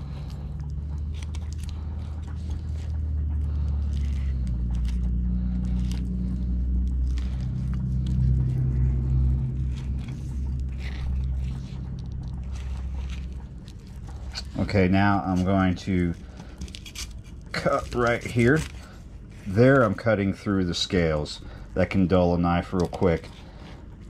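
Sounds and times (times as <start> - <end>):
low mechanical hum: 0.0 - 24.0
knife scraping and clicking on bones: 15.4 - 18.9.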